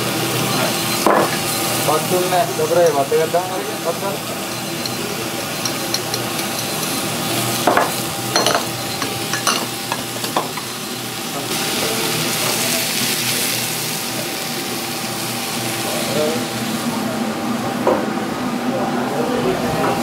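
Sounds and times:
food sizzling in a pan: 0.0s - 17.1s
utensils clinking: 4.4s - 10.8s.

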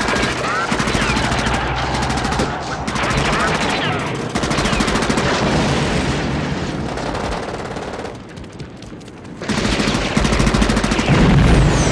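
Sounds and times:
automatic gunfire: 0.0s - 5.7s, 9.3s - 11.4s
explosion rumble: 5.2s - 7.2s, 11.1s - 11.9s.

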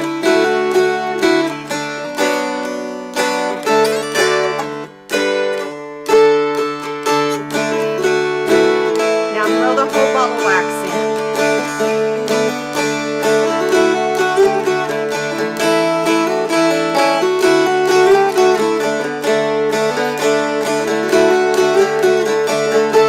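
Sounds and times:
dulcimers strummed: 0.0s - 23.0s.

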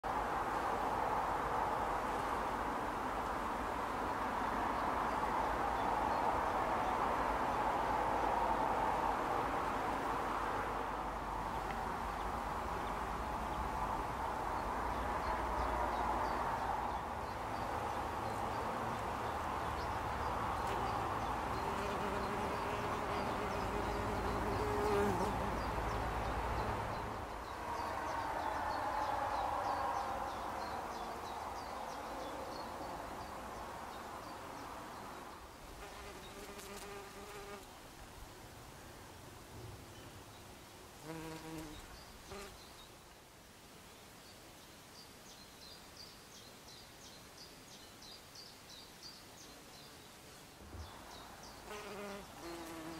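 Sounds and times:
bumblebee buzzing: 20.6s - 25.7s, 35.8s - 37.7s, 41.0s - 42.6s, 51.6s - 52.9s.

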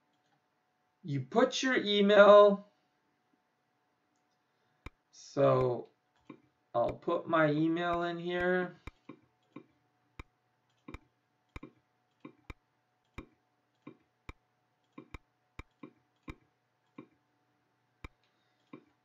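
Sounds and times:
computer mouse button clicking: 10.9s - 12.6s.

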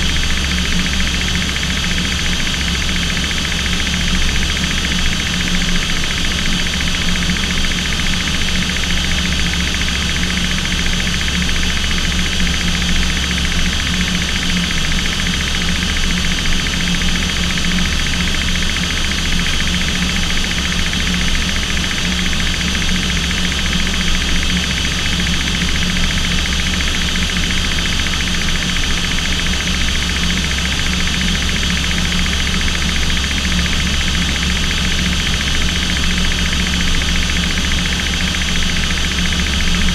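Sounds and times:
aircraft engines droning: 0.0s - 39.9s.

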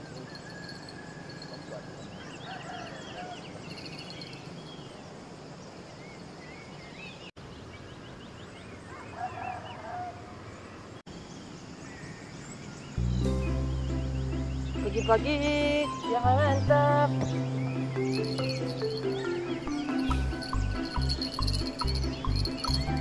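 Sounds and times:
small birds chirping and trilling: 0.0s - 23.0s
lower bird call: 13.0s - 23.0s.

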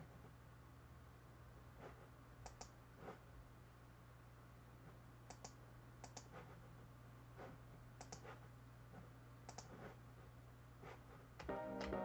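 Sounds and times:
low steady hum: 0.0s - 12.0s
computer mouse clicks: 2.4s - 2.8s, 5.2s - 6.4s, 8.0s - 8.3s, 9.4s - 9.8s.

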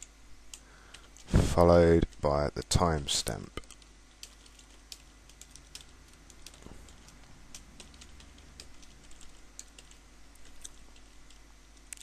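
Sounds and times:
keyboard typing: 3.6s - 12.0s.

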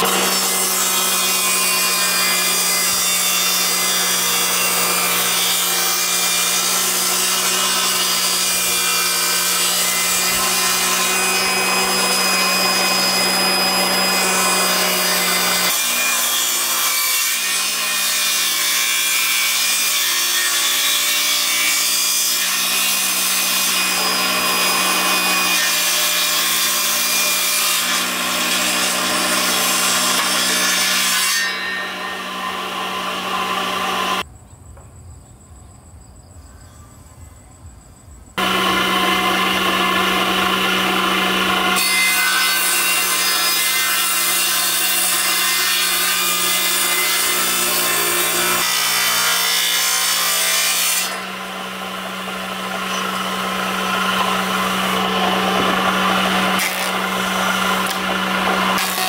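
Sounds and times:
power tool cutting wood: 0.0s - 34.2s, 38.4s - 59.0s.

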